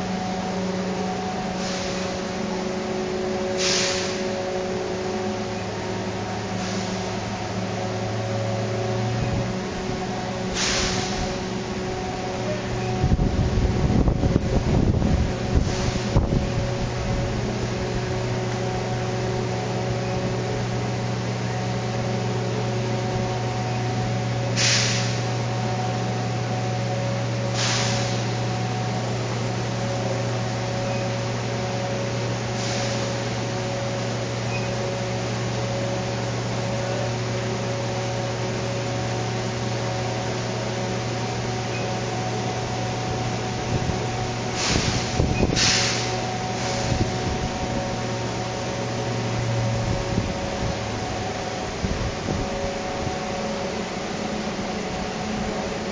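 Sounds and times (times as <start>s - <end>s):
industrial machinery hum: 0.0s - 55.9s
short bursts of hiss: 10.6s - 11.2s, 24.6s - 25.2s, 44.6s - 46.9s.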